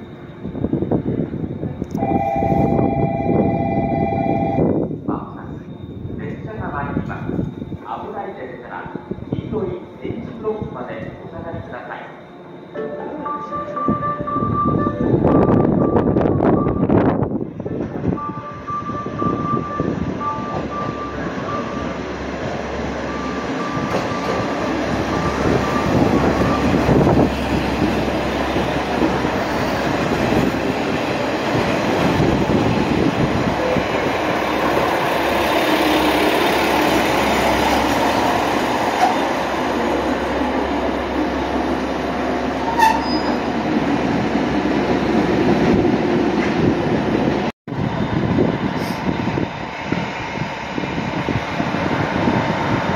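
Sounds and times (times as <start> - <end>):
train wheels rumbling on rails: 14.0 - 52.9
diesel engines rumbling: 14.4 - 52.9.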